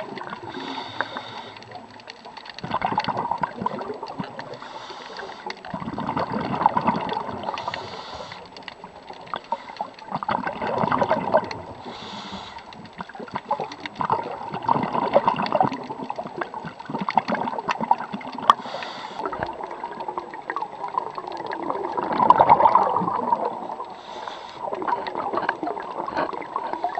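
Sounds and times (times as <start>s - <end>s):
exhaust bubbles crackling: 0.0s - 26.9s
regulator inhale hiss: 0.4s - 1.8s, 4.5s - 5.6s, 7.5s - 8.6s, 11.8s - 12.8s, 18.5s - 19.3s, 23.9s - 25.2s.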